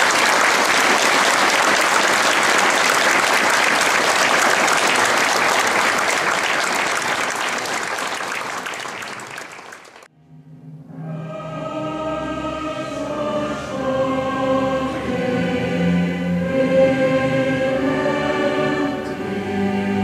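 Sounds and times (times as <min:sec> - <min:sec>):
large audience applauding: 0:00.0 - 0:10.1.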